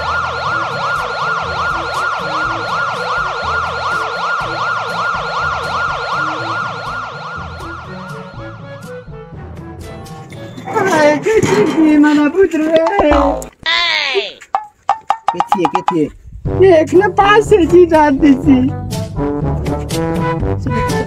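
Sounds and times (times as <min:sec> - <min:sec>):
ambulance siren wailing: 0:00.0 - 0:09.5
music bass line: 0:14.6 - 0:21.0.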